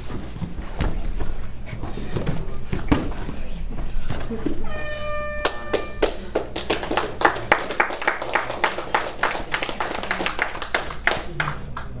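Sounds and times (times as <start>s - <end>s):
timer buzzer: 4.6s - 6.2s
people clapping: 5.4s - 12.0s.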